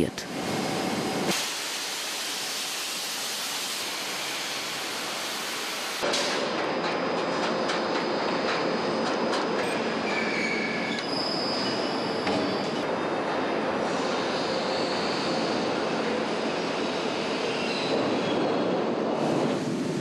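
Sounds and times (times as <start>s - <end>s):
machinery squealing and whining: 10.0s - 12.8s.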